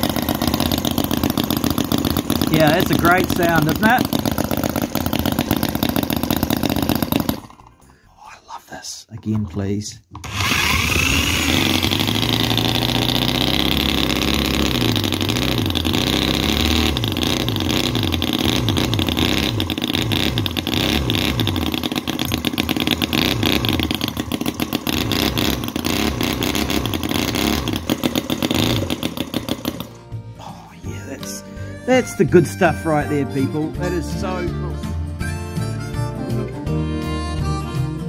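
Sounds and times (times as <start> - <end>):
electric drill whine: 0.0 - 7.7, 10.2 - 30.0
model engine running: 0.0 - 7.8, 10.2 - 30.0.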